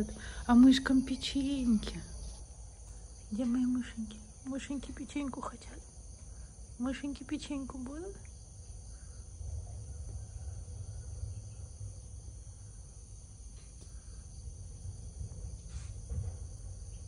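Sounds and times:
insects chirring: 0.0 - 17.0
low rumble: 14.3 - 17.0.

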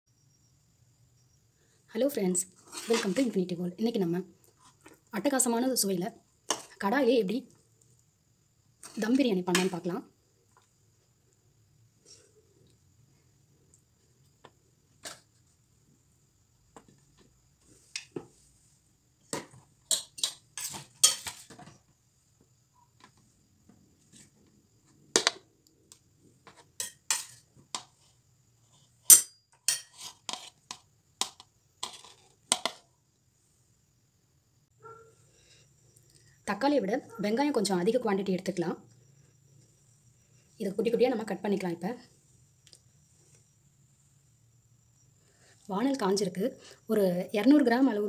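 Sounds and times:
plate and utensils clattering: 19.9 - 21.6.

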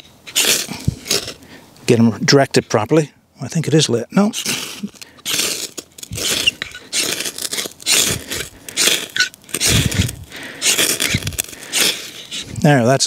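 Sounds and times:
knife scraping ferrocerium rod: 0.0 - 1.4, 4.3 - 12.5.

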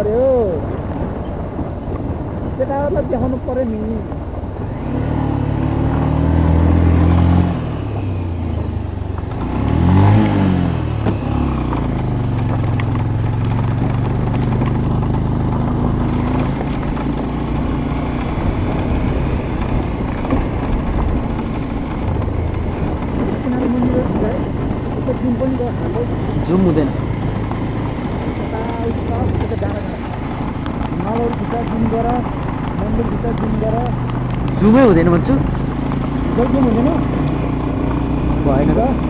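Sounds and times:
vehicle engine revving: 0.0 - 39.0
steady rattle: 11.0 - 39.0.

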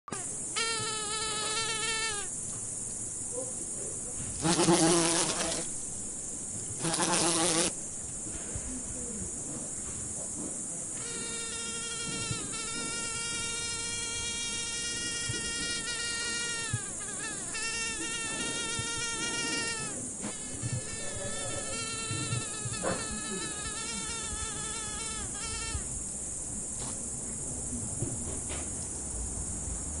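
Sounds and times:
mosquito buzzing in flight: 0.1 - 2.4, 4.4 - 5.7, 6.8 - 7.8, 11.0 - 25.9
steady high hiss: 0.1 - 30.0.

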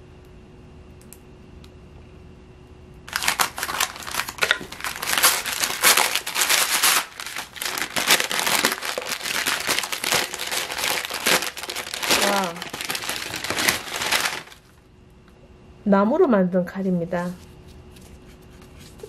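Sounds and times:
wrapping paper crinkling: 3.1 - 14.8.

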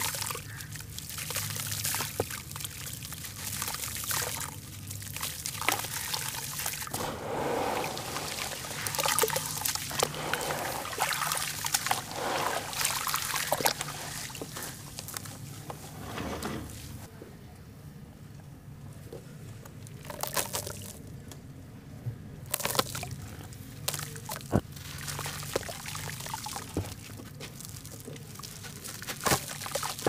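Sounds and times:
hands sloshing wet ash: 0.0 - 15.5
grit trickling into water: 0.0 - 15.6, 19.9 - 21.1, 22.5 - 30.0.

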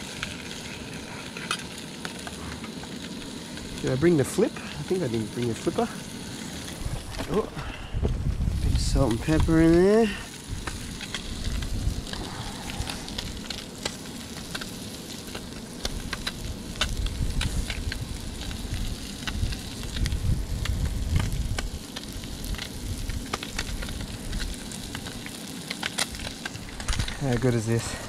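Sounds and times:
fish sizzling in a pan: 0.0 - 28.0
low rumble: 4.8 - 9.3, 10.4 - 13.9.

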